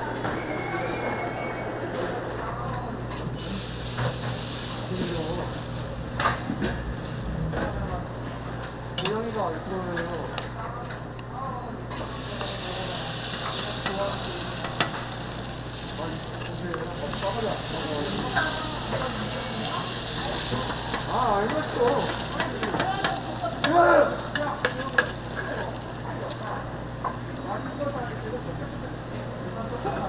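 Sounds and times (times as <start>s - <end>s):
food sizzling on a griddle: 3.1s - 7.3s, 8.8s - 10.6s, 11.9s - 30.0s.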